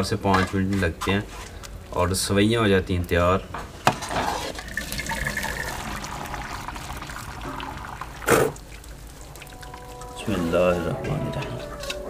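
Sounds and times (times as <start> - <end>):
water boiling and bubbling: 4.1 - 10.6.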